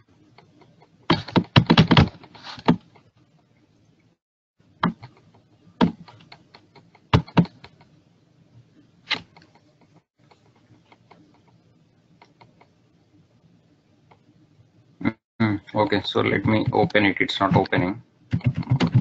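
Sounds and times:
computer keyboard and mouse clicking: 0:09.1 - 0:11.6, 0:12.2 - 0:12.8, 0:17.6 - 0:19.0.

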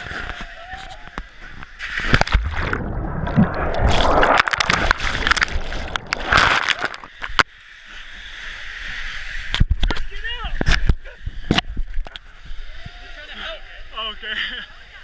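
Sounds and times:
steady water rush: 0:00.0 - 0:15.0
water sloshing and splashing: 0:01.3 - 0:10.0.

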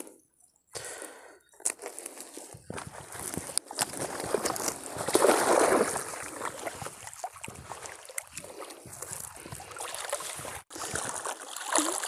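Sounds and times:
wet net rustling: 0:01.8 - 0:12.0
net splashing into water: 0:03.7 - 0:08.7, 0:09.6 - 0:12.0.

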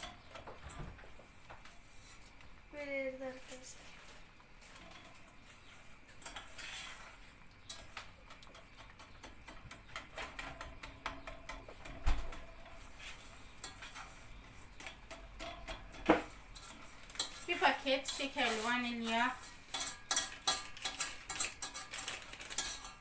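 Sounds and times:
metal spoon scraping a pot: 0:00.0 - 0:00.7, 0:03.7 - 0:23.0
spoon knocking against pot: 0:07.6 - 0:12.9, 0:14.7 - 0:18.2.

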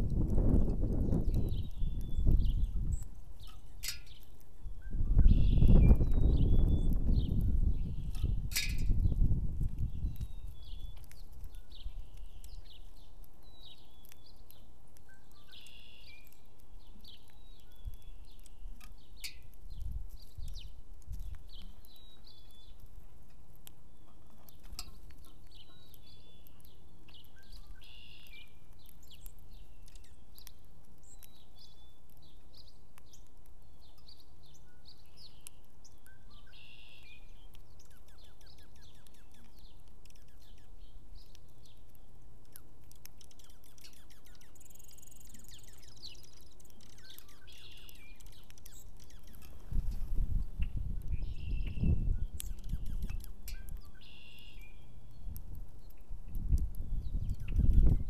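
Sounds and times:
songbirds chirping: 0:00.0 - 0:58.0
thin high-pitched bird call: 0:01.1 - 0:09.1, 0:10.0 - 0:16.5, 0:23.9 - 0:30.3, 0:33.9 - 0:41.4, 0:43.2 - 0:49.5, 0:50.6 - 0:56.1.

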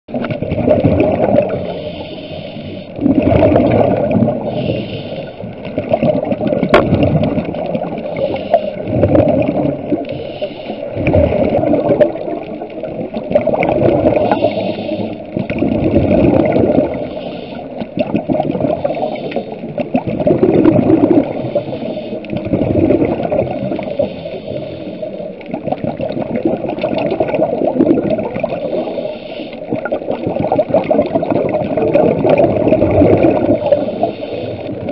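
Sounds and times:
underwater bubbles gurgling: 0:00.1 - 0:34.9
faint hiss: 0:01.5 - 0:03.0, 0:04.4 - 0:05.6, 0:09.9 - 0:11.0, 0:14.1 - 0:15.5, 0:16.9 - 0:17.9, 0:21.3 - 0:22.5, 0:23.6 - 0:25.4, 0:28.6 - 0:29.8, 0:33.6 - 0:34.9.

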